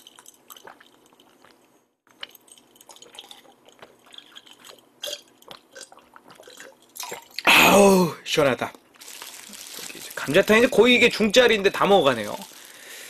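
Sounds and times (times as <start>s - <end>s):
person gulping a drink: 0.0s - 8.1s.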